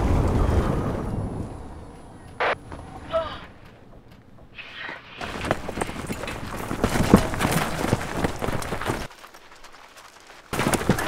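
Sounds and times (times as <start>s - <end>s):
running footsteps on gravel: 2.6s - 11.0s.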